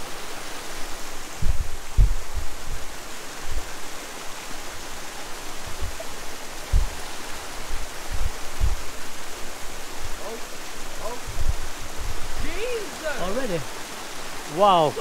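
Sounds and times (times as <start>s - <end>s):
river rushing over waterfall: 0.0s - 15.0s
low thumps: 1.3s - 3.7s, 5.6s - 9.1s, 11.2s - 12.5s.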